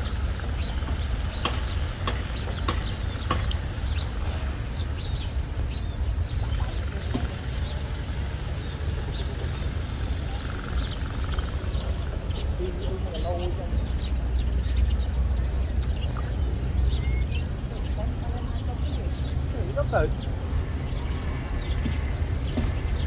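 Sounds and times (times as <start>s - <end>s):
thin steady high tone: 0.0s - 14.8s
bird chirps: 0.0s - 23.0s.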